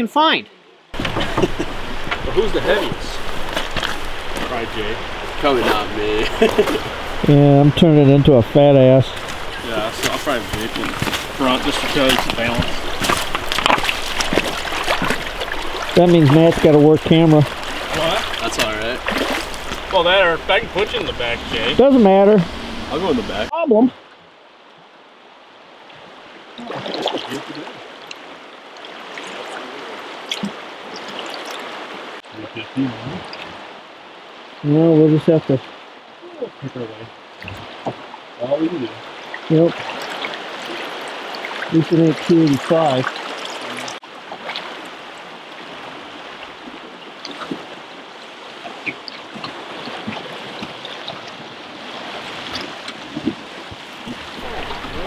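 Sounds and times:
river current flowing: 0.0s - 55.0s
oars knocking: 1.0s - 23.5s, 37.4s - 38.1s, 48.5s - 55.0s.

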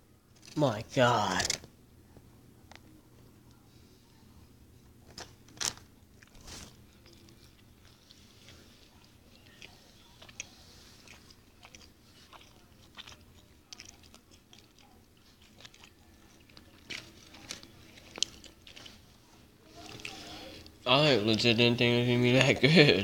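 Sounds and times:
person chewing: 6.1s - 20.8s
small clicks and crackles: 11.1s - 19.4s.

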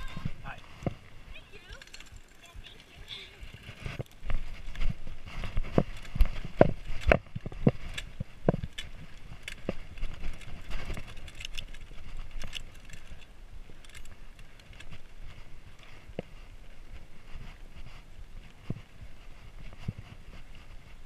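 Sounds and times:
tyres crunching on gravel: 0.0s - 17.1s
bike knocking and rattling: 0.0s - 21.0s.

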